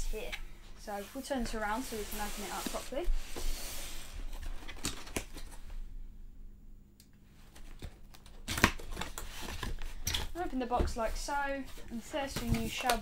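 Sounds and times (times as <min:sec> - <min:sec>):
cardboard box scraping on table: 0:01.1 - 0:04.2
cardboard tab cracking: 0:07.8 - 0:09.7.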